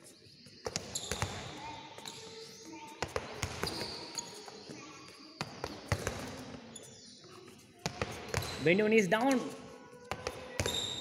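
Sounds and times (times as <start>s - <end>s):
basketballs bouncing on hard floor: 0.6s - 2.2s, 3.0s - 4.1s, 5.4s - 6.6s, 7.8s - 9.5s, 10.1s - 11.0s.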